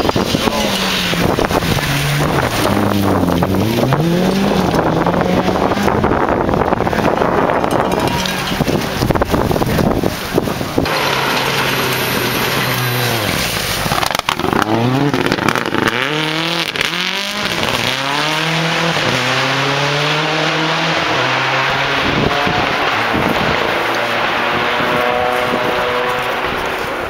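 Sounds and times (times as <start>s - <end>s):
tyres throwing gravel: 0.0s - 5.8s, 7.4s - 20.2s
rally car engine revving: 0.0s - 27.0s
sharp cracks: 10.8s - 18.0s.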